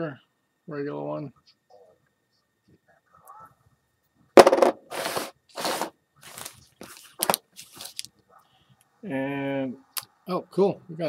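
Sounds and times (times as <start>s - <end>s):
foil wrapper crinkling: 5.6s - 8.1s.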